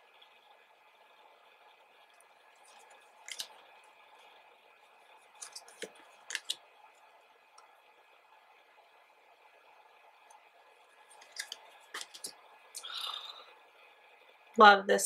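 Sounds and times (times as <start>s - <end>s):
photo cards clicking and tapping: 3.2s - 3.6s, 5.4s - 6.6s, 11.1s - 12.3s.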